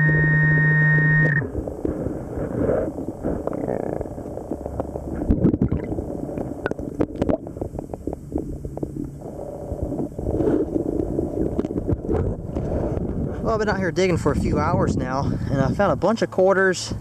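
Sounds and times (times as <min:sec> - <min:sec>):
sharp clicks underwater: 0:00.0 - 0:02.0, 0:03.2 - 0:13.3
underwater rumbling and gurgling: 0:00.0 - 0:15.5.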